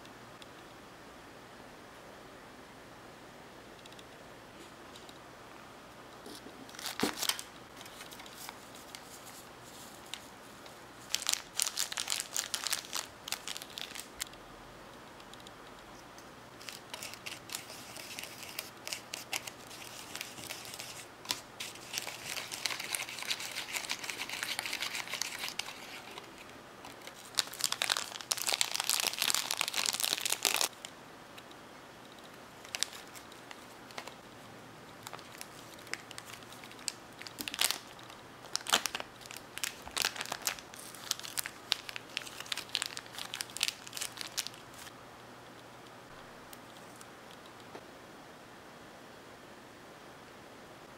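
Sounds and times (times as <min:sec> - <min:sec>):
plastic packaging crinkling: 0:06.7 - 0:14.3, 0:16.6 - 0:30.9, 0:32.2 - 0:34.2, 0:35.0 - 0:44.9.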